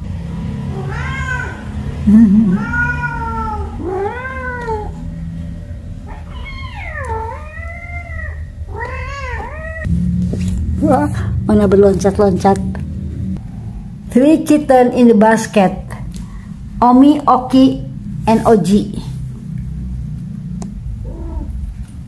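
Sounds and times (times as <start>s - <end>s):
loud low warbling: 0.0s - 4.1s, 7.3s - 15.1s, 15.8s - 22.0s
kittens meowing: 0.7s - 5.1s, 6.1s - 9.9s, 21.0s - 21.6s.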